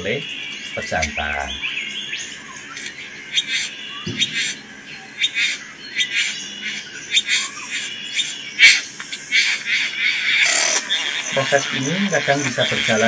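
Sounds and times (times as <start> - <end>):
bird making harsh calls: 0.0 - 13.0.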